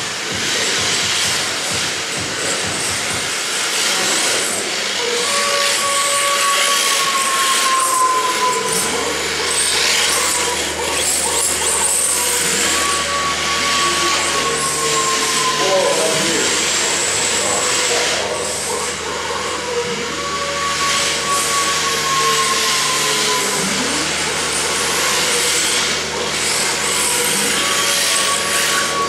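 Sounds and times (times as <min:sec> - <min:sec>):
tyres scrubbing hiss: 0:00.0 - 0:19.8
high motor whine: 0:00.0 - 0:29.0.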